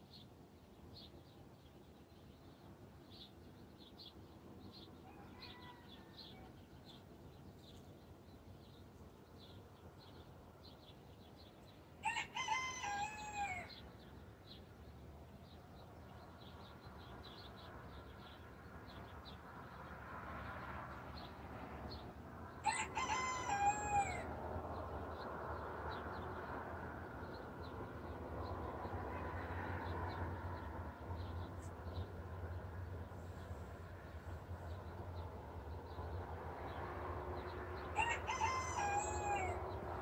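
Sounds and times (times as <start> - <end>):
rooster crowing: 5.0 - 6.5, 12.0 - 13.8, 22.6 - 24.3, 37.9 - 39.7.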